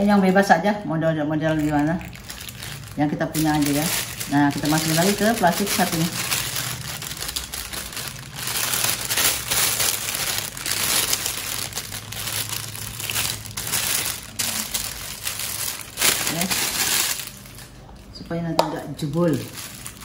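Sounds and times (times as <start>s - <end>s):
plastic bag crinkling: 1.3s - 20.0s.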